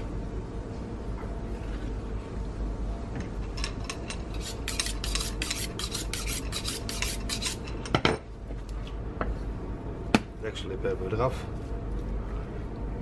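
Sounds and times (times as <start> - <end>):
knife scraping on sharpening steel: 3.9 - 7.8.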